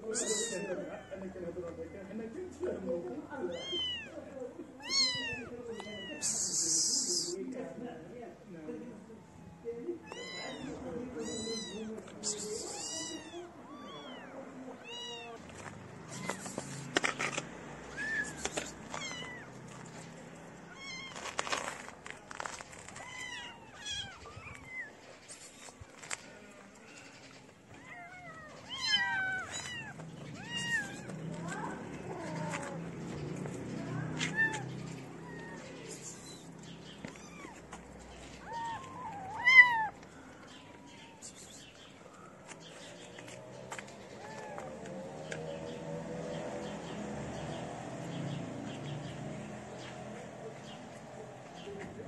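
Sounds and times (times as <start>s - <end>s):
kittens meowing: 0.0s - 1.4s, 3.4s - 7.4s, 9.2s - 17.0s, 17.8s - 26.1s, 26.8s - 41.8s, 43.8s - 45.4s.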